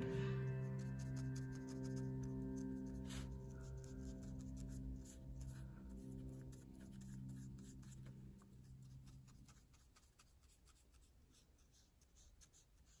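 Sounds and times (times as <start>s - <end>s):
low background music: 0.0s - 11.3s
marker scratching on paper: 8.8s - 13.0s.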